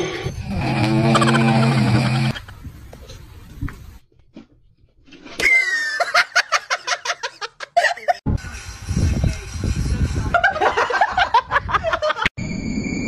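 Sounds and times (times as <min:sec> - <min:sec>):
person laughing: 0:01.1 - 0:02.6, 0:05.4 - 0:08.2.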